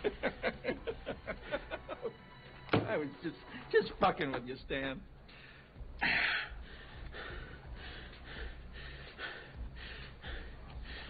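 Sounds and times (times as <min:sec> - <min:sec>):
person breathing hard: 0:05.3 - 0:11.0.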